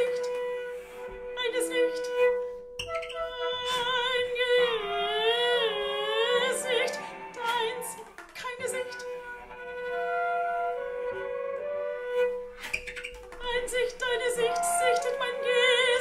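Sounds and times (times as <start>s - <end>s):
woman singing opera: 0.0s - 12.3s, 13.4s - 16.0s.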